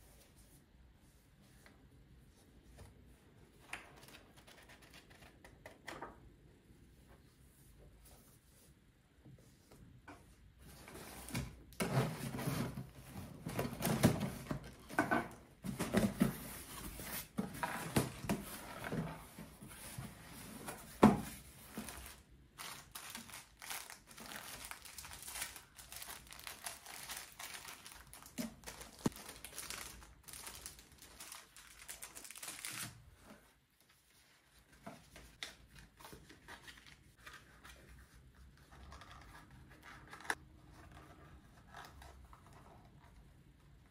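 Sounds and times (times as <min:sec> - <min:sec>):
packing paper rustling: 0:21.4 - 0:33.1.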